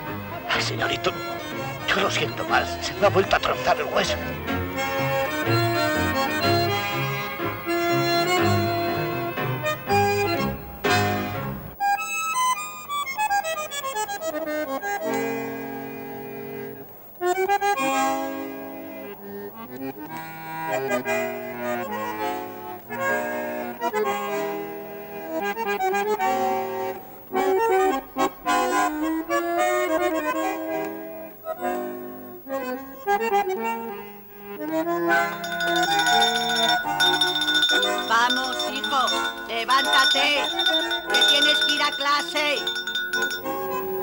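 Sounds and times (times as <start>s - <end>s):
instrumental music: 26.1s - 44.0s.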